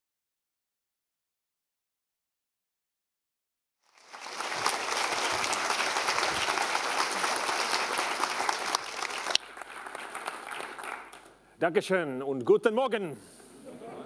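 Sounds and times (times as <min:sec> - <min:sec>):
audience applauding: 0:03.8 - 0:11.4.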